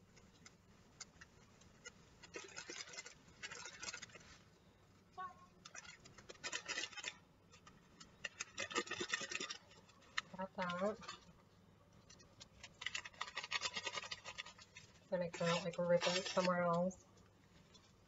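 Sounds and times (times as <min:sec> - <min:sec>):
paper pouch crinkling: 0:02.2 - 0:04.4, 0:12.4 - 0:16.5.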